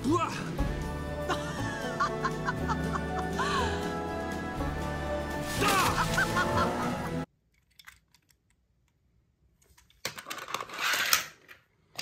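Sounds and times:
music: 0.0 - 7.3
toy cars clattering: 9.8 - 12.0.

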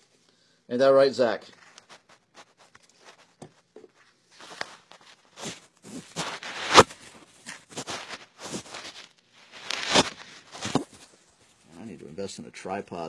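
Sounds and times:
paper towel scrubbing circuit board: 4.8 - 11.0.

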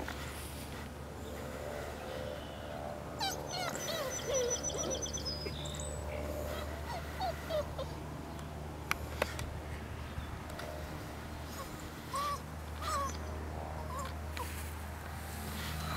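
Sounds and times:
steady low hum: 0.0 - 15.9
birds chirping and singing: 2.1 - 7.5.

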